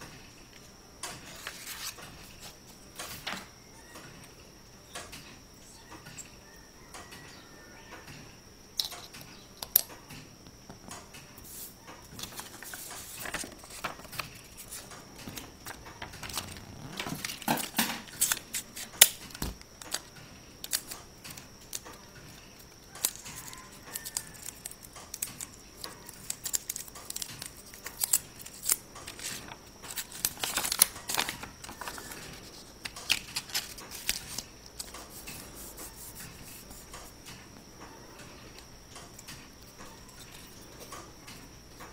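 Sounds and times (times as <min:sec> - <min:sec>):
paper rustling and crinkling: 0:01.2 - 0:03.5, 0:11.5 - 0:20.0, 0:23.0 - 0:37.1.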